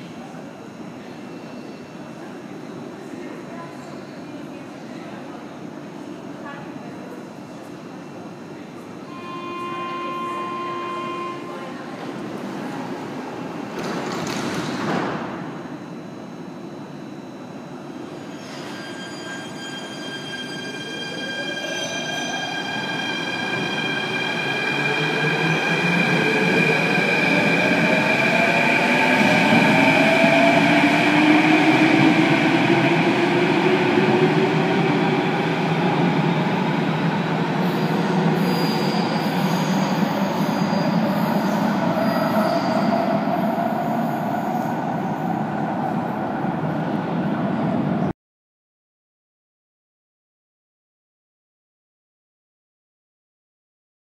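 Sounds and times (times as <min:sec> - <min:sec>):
steady high-pitched tones: 0:09.0 - 0:12.8.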